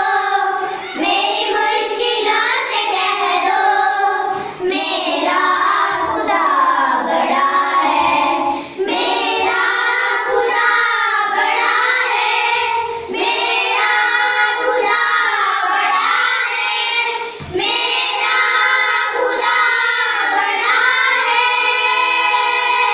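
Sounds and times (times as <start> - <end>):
children singing in unison: 0.0 - 22.9.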